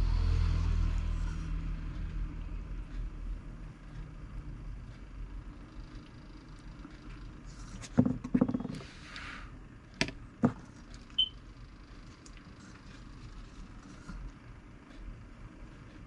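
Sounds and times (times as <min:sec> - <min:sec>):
plastic knocking on wooden bench: 0:07.9 - 0:08.8.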